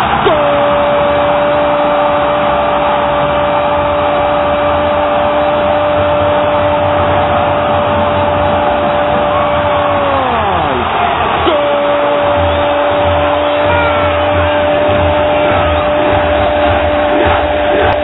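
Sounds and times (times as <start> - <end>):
commentator shouting goal: 0.0 - 3.7, 9.4 - 16.3
stadium crowd cheering: 0.0 - 18.0.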